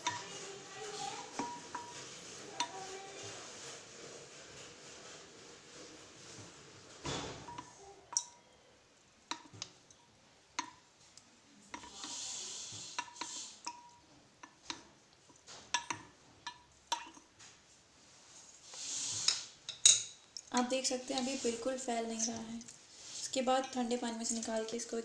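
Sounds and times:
utensil clinking against steel bowl: 1.1 - 2.8.

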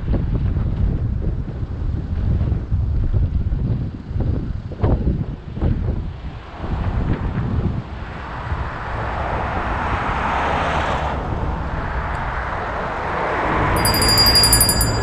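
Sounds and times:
car road and engine noise: 3.3 - 15.0
fast ticking: 13.8 - 15.0
high electronic chime: 13.8 - 15.0.

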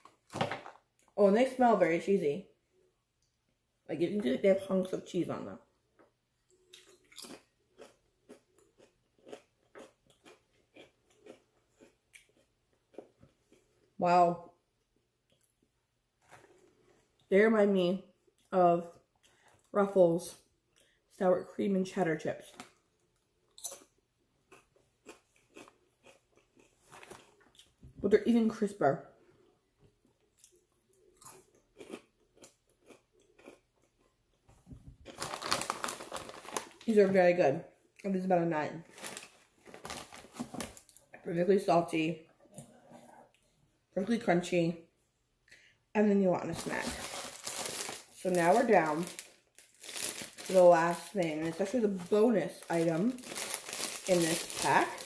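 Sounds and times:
potato chip crunching: 6.8 - 13.0, 24.5 - 27.8, 31.2 - 34.1, 35.0 - 37.0, 38.9 - 41.0, 46.5 - 55.0.

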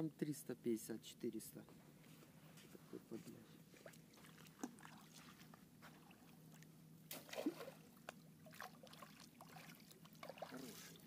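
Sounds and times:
faint low hum: 0.0 - 11.0
water sloshing and splashing: 3.6 - 11.0.

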